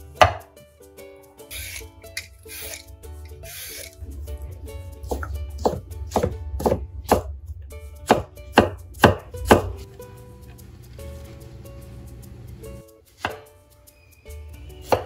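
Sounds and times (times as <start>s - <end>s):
knife chopping on wooden board: 13.2s - 13.5s.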